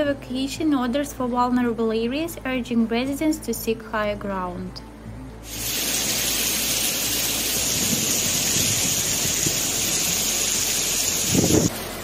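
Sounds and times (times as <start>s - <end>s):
floodwater rushing: 5.5s - 11.7s
heavy rain pouring: 5.5s - 11.7s.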